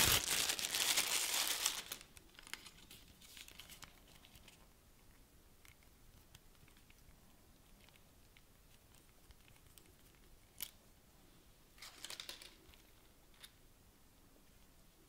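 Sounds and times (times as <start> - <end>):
packaging crinkling and rustling: 0.0 - 4.6, 11.8 - 13.5.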